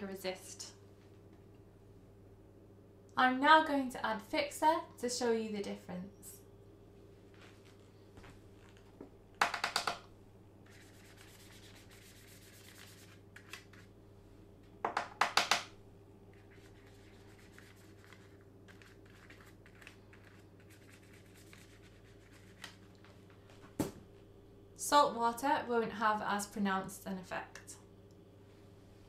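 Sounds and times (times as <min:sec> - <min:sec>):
faint steady hum: 0:00.0 - 0:29.0
soft scratchy rubbing: 0:10.7 - 0:13.9.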